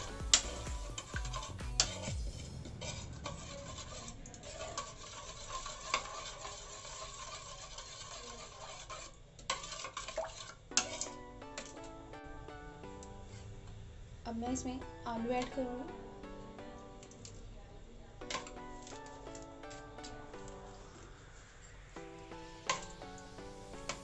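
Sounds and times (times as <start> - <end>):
spoon scraping thick yogurt: 2.7 - 10.6.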